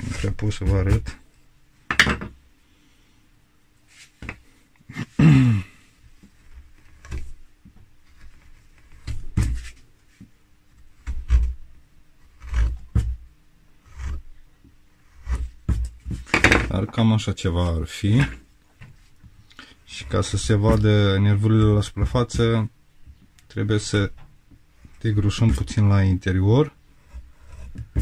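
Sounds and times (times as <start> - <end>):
chisel scraping wood: 0.0 - 1.2, 6.4 - 7.4, 11.0 - 11.6, 12.2 - 13.2, 13.8 - 16.8, 19.9 - 22.7, 24.8 - 25.9, 26.8 - 28.0
faint steady hum: 0.0 - 28.0.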